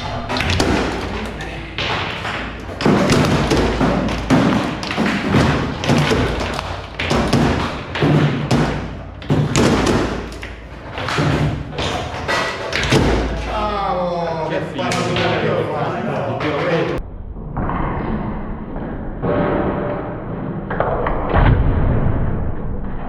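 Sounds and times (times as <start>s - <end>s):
foosball ball thumping and knocking: 0.0s - 13.6s, 14.8s - 15.6s.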